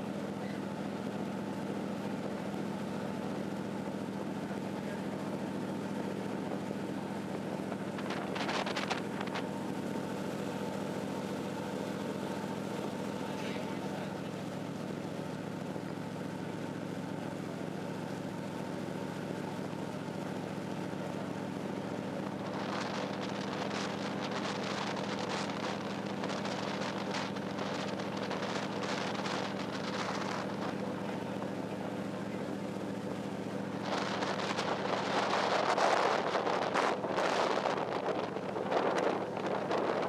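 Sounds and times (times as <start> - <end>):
ship engines droning: 0.0 - 40.0
wind buffeting microphone: 7.3 - 9.6, 33.7 - 40.0.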